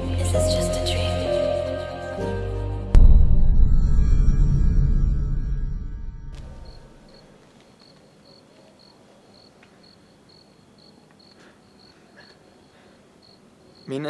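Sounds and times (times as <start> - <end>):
music: 0.0 - 4.9
cricket chirping: 6.2 - 14.0.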